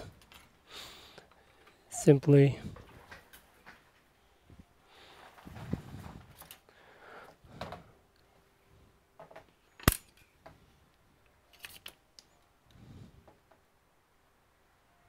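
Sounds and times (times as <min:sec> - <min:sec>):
handling clicks and rustling: 0:00.0 - 0:00.6, 0:01.2 - 0:04.2, 0:05.1 - 0:06.7, 0:09.2 - 0:12.5.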